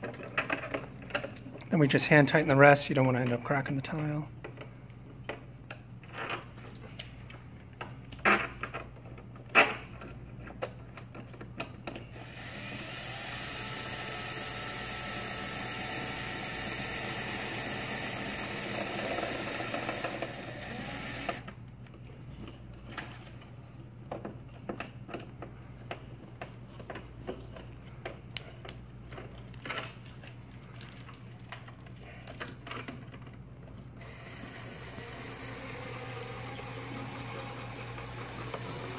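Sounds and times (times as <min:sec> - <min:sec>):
cordless drill driving screws: 0:12.1 - 0:21.5, 0:34.0 - 0:38.9
clicks and knocks of handling: 0:21.6 - 0:33.9.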